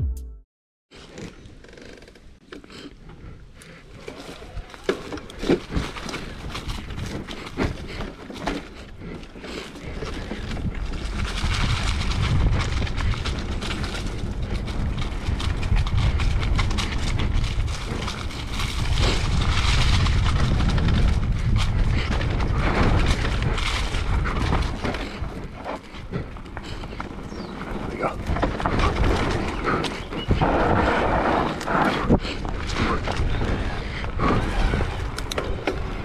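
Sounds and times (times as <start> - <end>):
tyre noise on dirt: 2.2 - 36.0
wind on microphone: 9.8 - 36.0
bike rattling clicks: 31.7 - 36.0.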